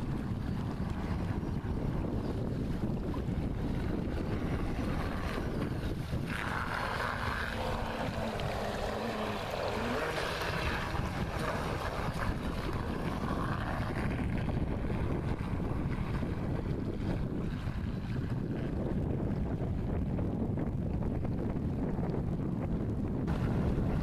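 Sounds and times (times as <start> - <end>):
distant boat electric motor: 0.0 - 18.8
wind noise on microphone: 0.0 - 24.0.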